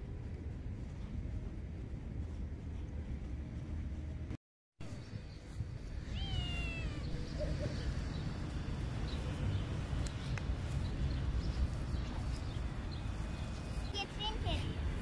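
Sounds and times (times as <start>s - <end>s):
cat meowing: 6.0s - 7.3s.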